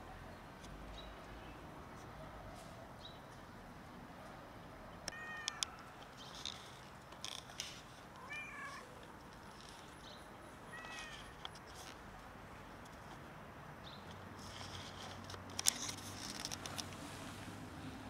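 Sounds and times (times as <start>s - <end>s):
cat meowing: 5.1s - 5.6s, 8.2s - 8.9s, 10.7s - 11.4s.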